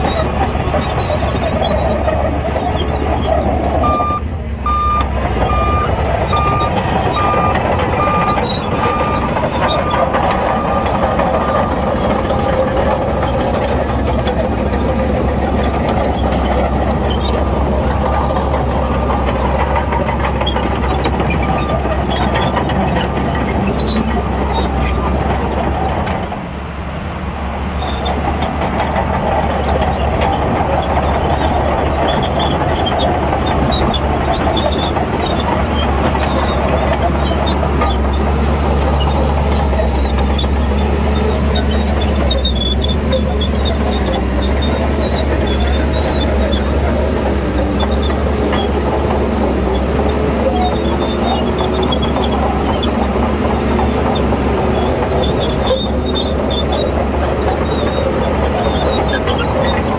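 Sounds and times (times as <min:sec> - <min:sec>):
bulldozer diesel engine running: 0:00.0 - 0:59.9
reverse alarm beeping: 0:03.8 - 0:09.2.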